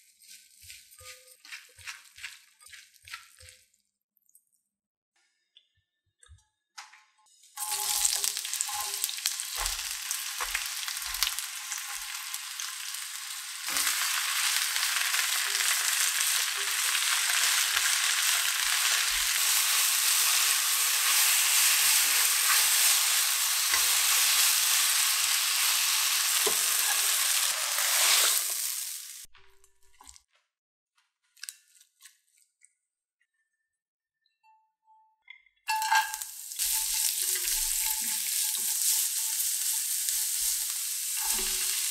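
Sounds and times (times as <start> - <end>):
vegetables sizzling in hot oil: 7.6 - 29.3, 35.7 - 41.9.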